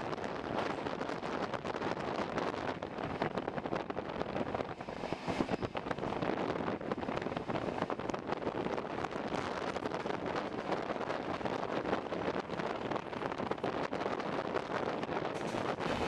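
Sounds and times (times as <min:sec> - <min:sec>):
passing goods train: 0:00.0 - 0:16.0
wind buffeting microphone: 0:00.0 - 0:16.0
train wheels clattering on rails: 0:14.9 - 0:16.0.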